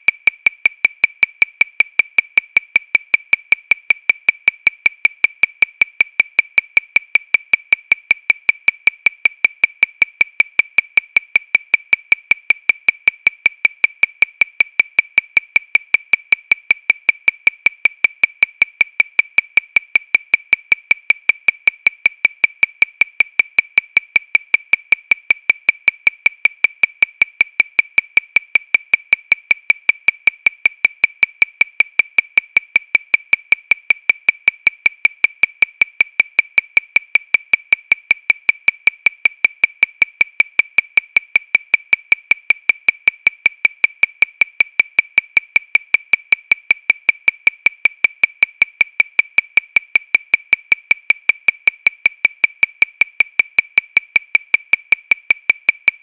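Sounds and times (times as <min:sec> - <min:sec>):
metronome clicking: 0:00.0 - 0:56.0.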